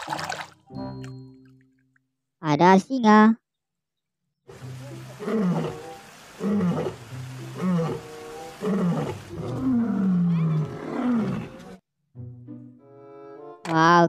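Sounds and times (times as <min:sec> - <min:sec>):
lions roaring: 0:05.1 - 0:11.8.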